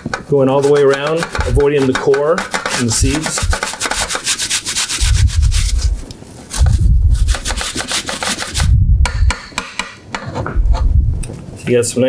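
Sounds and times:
apple grated on metal grater: 0.0s - 5.8s, 6.6s - 8.7s
low thuds: 5.0s - 7.4s, 8.6s - 9.6s, 10.4s - 11.4s.

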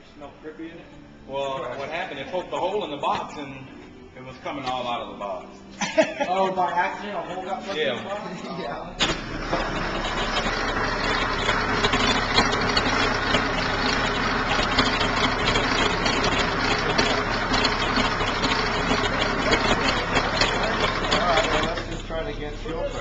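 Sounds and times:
racing engine running: 9.0s - 23.0s.

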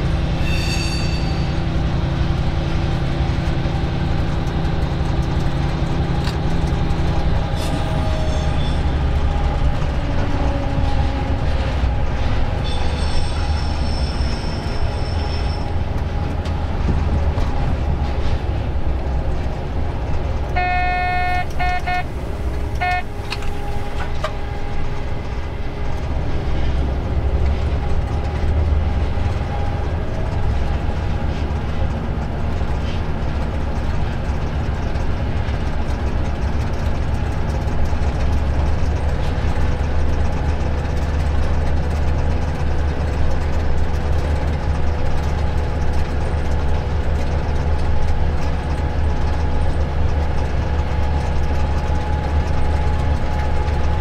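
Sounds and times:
diesel locomotive engine drone: 0.0s - 54.0s
short pitched horn toots: 20.6s - 22.2s, 22.8s - 23.3s.

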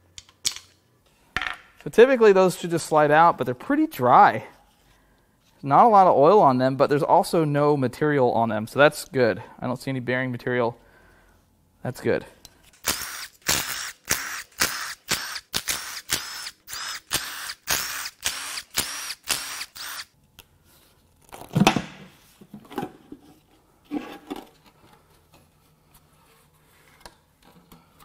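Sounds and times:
power tool whirring bursts: 12.8s - 20.1s.

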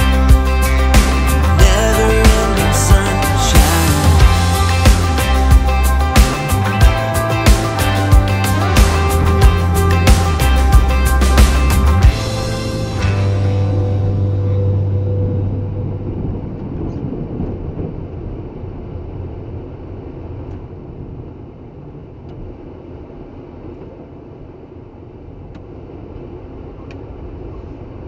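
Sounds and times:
music: 0.0s - 16.5s
truck engine and road rumble: 0.0s - 28.0s.

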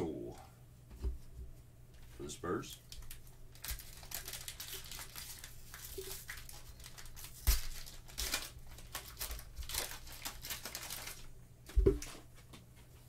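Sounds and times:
foil wrapper crinkling and tearing: 2.8s - 11.3s.

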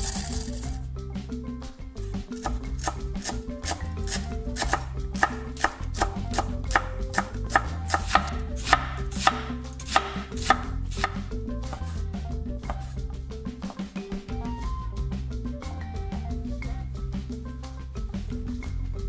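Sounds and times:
background music: 0.0s - 19.0s
cleaver chopping on wooden board: 2.4s - 11.8s.

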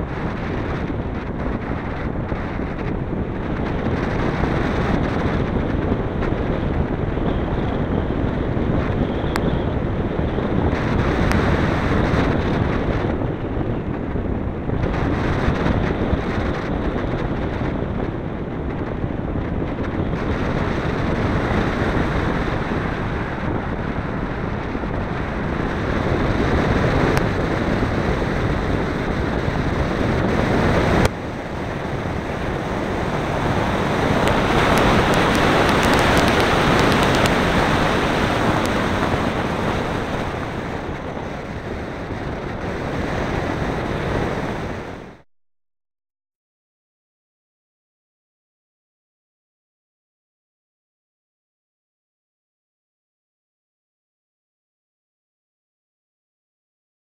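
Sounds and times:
wind roar on microphone: 0.0s - 45.2s.

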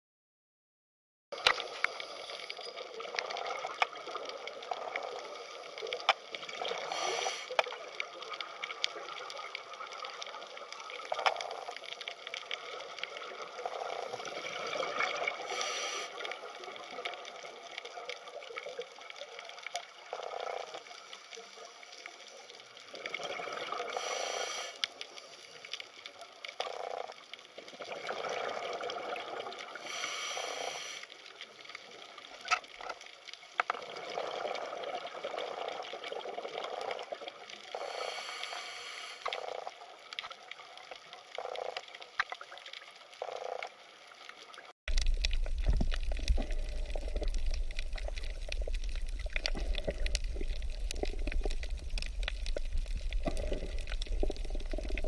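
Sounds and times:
scuba regulator breathing bubbles: 6.5s - 7.6s, 13.9s - 16.4s, 23.3s - 24.8s, 29.8s - 31.1s, 37.7s - 39.6s, 45.6s - 55.0s
steady underwater rush: 44.9s - 55.0s.

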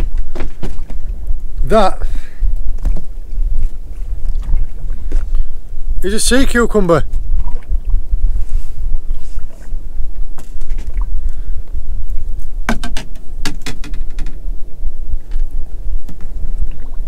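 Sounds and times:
wind buffeting microphone: 0.0s - 17.0s
sharp clicks and knocks: 12.7s - 14.4s.

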